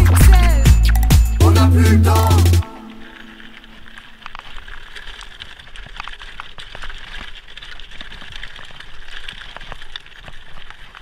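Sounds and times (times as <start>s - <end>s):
bike tyres crunching on gravel: 2.6s - 11.0s.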